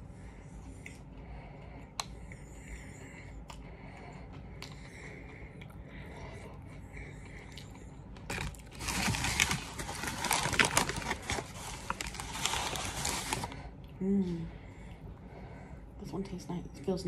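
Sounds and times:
paper bag rustling: 0:08.3 - 0:13.6.

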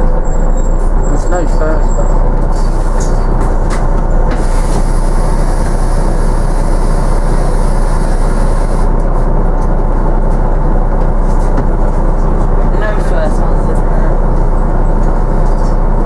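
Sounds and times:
bus engine and road rumble: 0:00.0 - 0:16.0.

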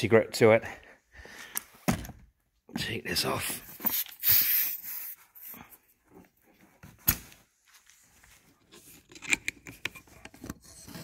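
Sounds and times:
compressed air hissing: 0:03.8 - 0:05.5.

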